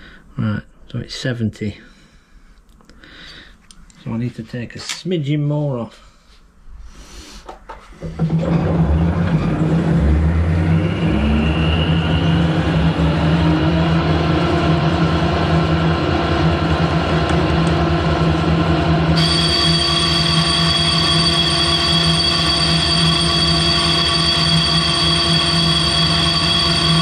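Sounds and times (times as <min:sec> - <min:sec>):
lathe motor whining: 0:08.0 - 0:27.0.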